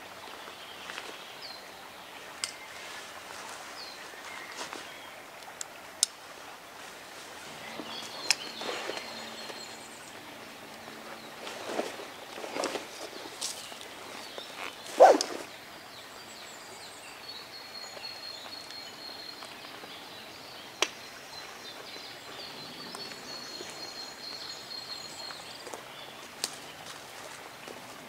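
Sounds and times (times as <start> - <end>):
footsteps on forest floor: 11.1 - 15.5.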